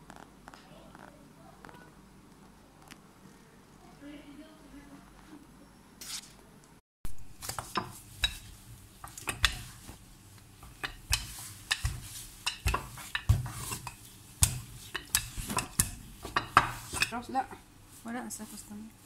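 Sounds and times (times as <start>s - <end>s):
rolling pin on stone countertop: 7.4s - 10.0s, 10.6s - 19.0s.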